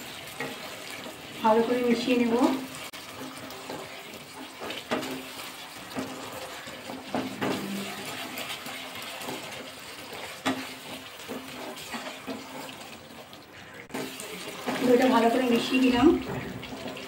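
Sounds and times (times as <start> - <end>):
spice paste sizzling in a pan: 0.0 - 17.0
wooden spatula scraping a pan: 0.0 - 17.0.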